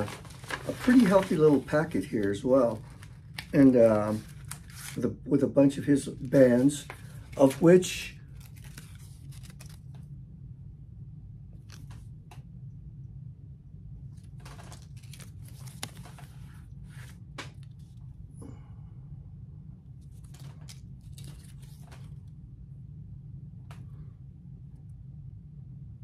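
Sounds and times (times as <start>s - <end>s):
paper rustling and crinkling: 0.0s - 5.1s, 5.9s - 10.0s, 14.2s - 18.0s, 20.0s - 22.3s
steady low hum: 0.0s - 26.0s.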